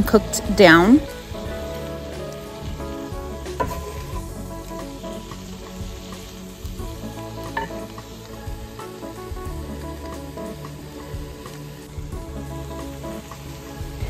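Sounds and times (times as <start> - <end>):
vegetables sizzling in a pan: 0.0 - 14.0.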